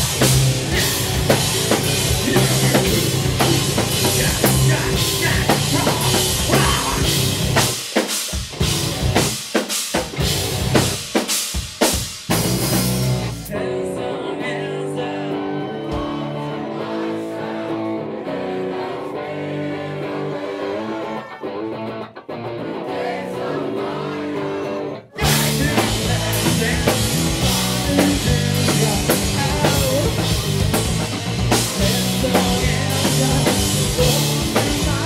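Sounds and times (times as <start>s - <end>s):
electric guitars ringing: 0.0s - 7.6s
rock band playing loud: 0.0s - 35.0s.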